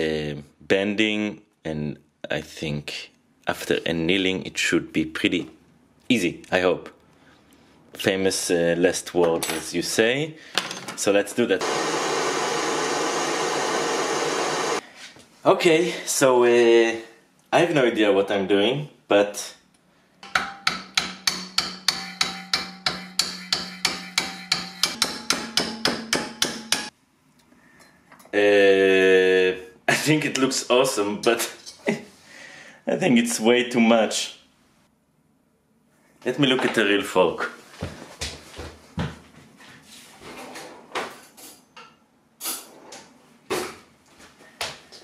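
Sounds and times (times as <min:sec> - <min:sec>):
hammer blows ringing on metal: 0:20.4 - 0:26.9.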